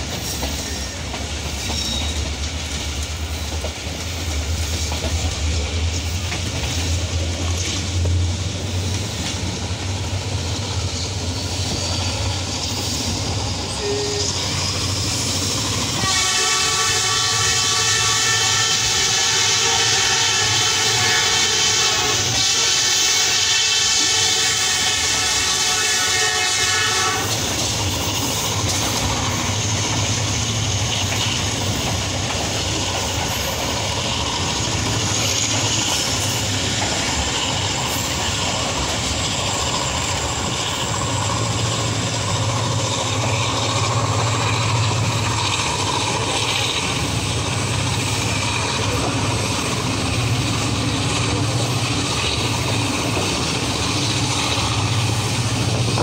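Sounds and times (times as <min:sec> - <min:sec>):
train rumble and rail noise: 0:00.0 - 0:56.0
diesel locomotive horn: 0:13.7 - 0:14.6, 0:15.9 - 0:27.5.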